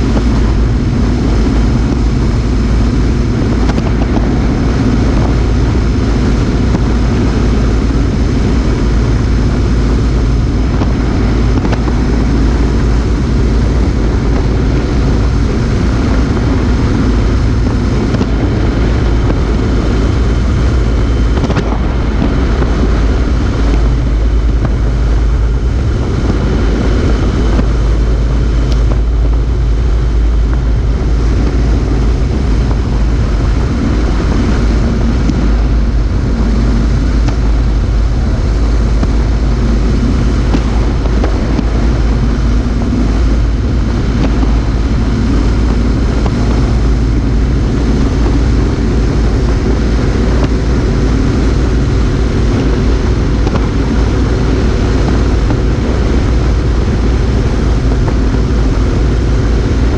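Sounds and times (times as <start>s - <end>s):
motorcycle engine running: 0.0s - 59.9s
tyre noise: 0.0s - 59.9s
wind rush: 0.0s - 59.9s.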